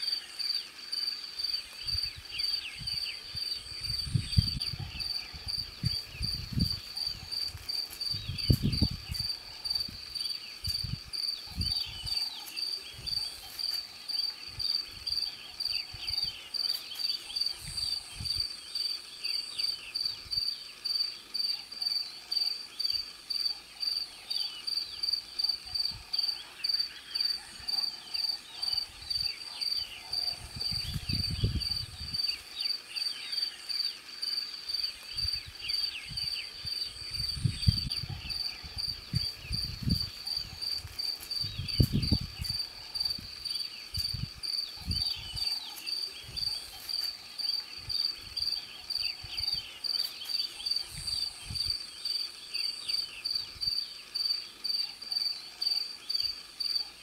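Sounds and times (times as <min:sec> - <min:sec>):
cricket chirping: 0:00.0 - 0:57.0.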